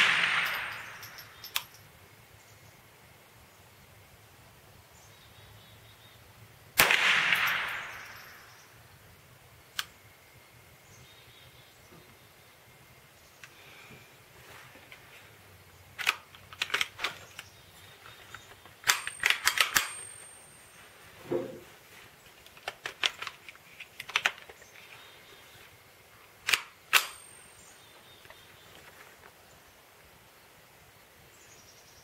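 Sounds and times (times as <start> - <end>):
rifle shots cracking: 0.0 - 1.4, 6.8 - 8.6, 18.8 - 20.3, 26.5 - 27.3
mechanical handling clicks: 16.0 - 17.5, 18.3 - 20.0, 22.4 - 24.6, 26.4 - 27.2.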